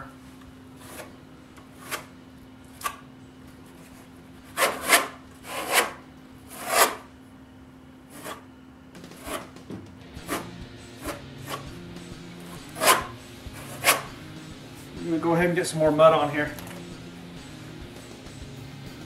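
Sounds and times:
trowel scraping: 0:00.8 - 0:02.1, 0:03.8 - 0:07.1, 0:08.1 - 0:08.5, 0:09.1 - 0:09.6, 0:10.2 - 0:11.7, 0:12.5 - 0:14.2.

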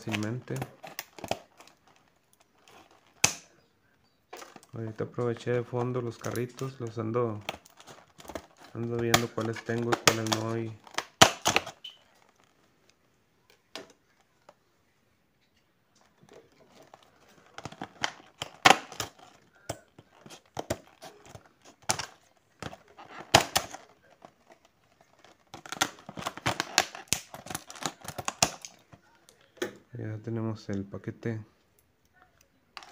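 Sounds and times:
plastic packaging crinkling: 0:00.0 - 0:03.5, 0:04.3 - 0:12.8, 0:16.0 - 0:29.4.

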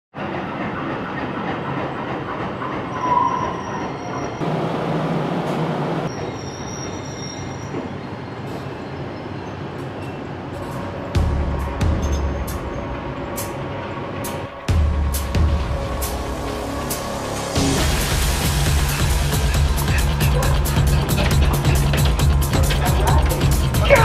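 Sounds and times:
subway train running: 0:00.1 - 0:24.0
train wheel squeal: 0:00.2 - 0:04.4, 0:06.1 - 0:11.2, 0:12.0 - 0:13.6.

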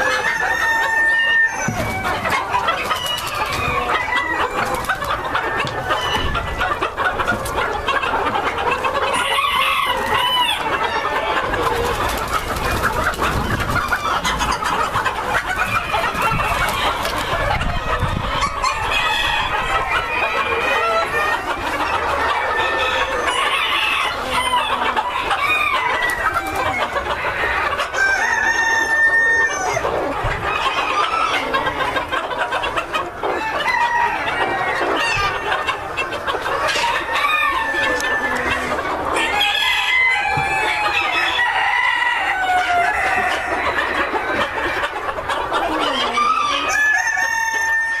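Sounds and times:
rooster crowing: 0:00.0 - 0:02.4, 0:03.0 - 0:06.3, 0:09.1 - 0:11.2, 0:22.4 - 0:29.8, 0:33.4 - 0:35.3, 0:36.8 - 0:44.7, 0:45.8 - 0:48.0
chickens clucking and calling: 0:00.0 - 0:48.0.

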